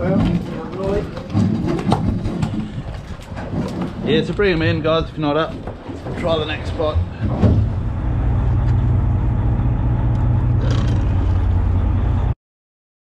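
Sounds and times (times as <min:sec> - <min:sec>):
boat engine droning: 0:05.8 - 0:12.4.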